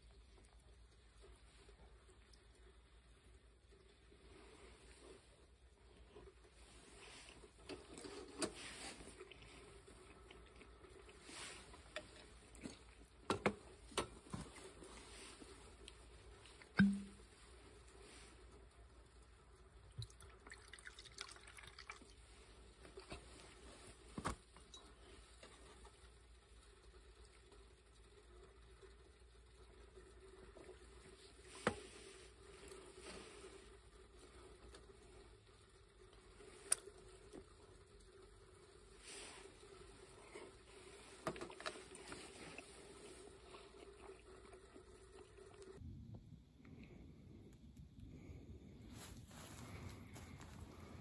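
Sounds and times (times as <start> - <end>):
soft rustling: 4.3 - 13.0, 48.2 - 51.0.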